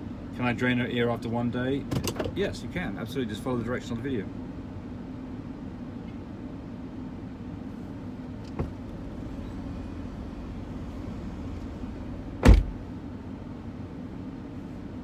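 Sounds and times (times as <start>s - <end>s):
car cabin hum: 3.5s - 15.0s
car door shutting: 8.4s - 8.9s, 12.4s - 12.8s
car door click: 12.4s - 12.8s.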